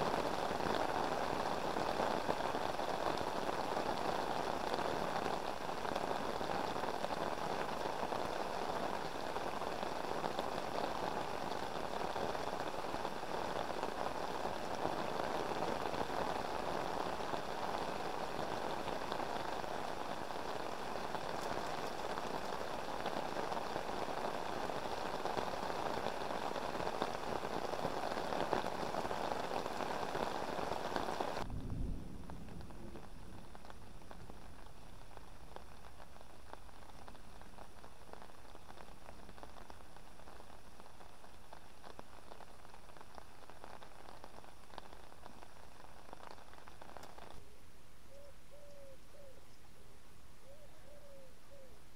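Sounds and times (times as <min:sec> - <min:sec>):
heavy rain on umbrella: 0:00.0 - 0:47.5
quiet hiss: 0:00.0 - 0:51.9
brief low rumble: 0:31.5 - 0:34.4.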